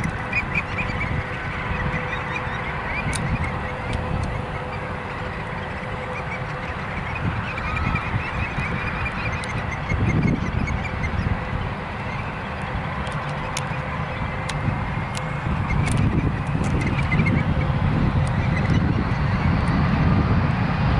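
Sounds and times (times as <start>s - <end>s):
distant jet engines rumbling: 0.0s - 20.9s
faint steady whine: 0.0s - 20.9s.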